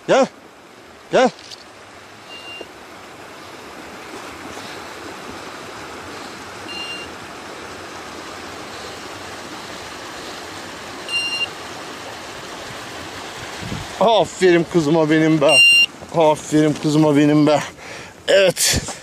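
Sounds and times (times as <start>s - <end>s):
short high electronic beeps: 2.3s - 2.7s, 11.1s - 11.5s, 15.5s - 15.9s.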